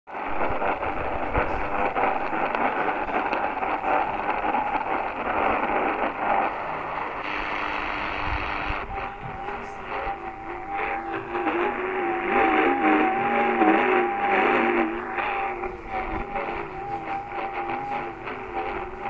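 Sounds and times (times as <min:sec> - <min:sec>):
faint thin digital radio tones: 0:00.1 - 0:19.0
low radio tone: 0:00.1 - 0:19.0
radio static: 0:00.1 - 0:19.0.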